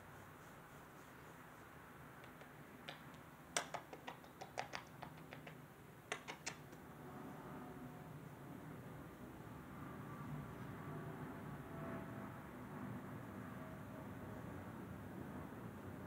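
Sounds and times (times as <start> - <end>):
short sharp clicks and smacks: 2.2 - 6.8.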